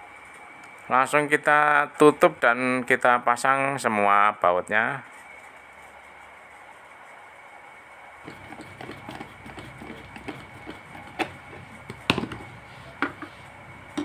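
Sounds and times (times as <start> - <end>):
plastic knocks: 10.1 - 13.2.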